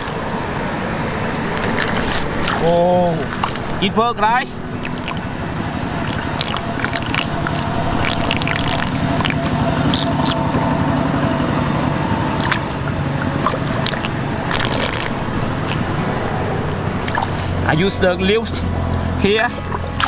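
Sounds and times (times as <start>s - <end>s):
steady low hum: 0.0s - 20.0s
water swirling into pipe: 1.4s - 3.8s, 4.8s - 10.8s, 12.2s - 16.0s
hands splashing water: 1.5s - 3.8s, 4.8s - 5.3s, 6.0s - 10.6s, 12.2s - 15.9s.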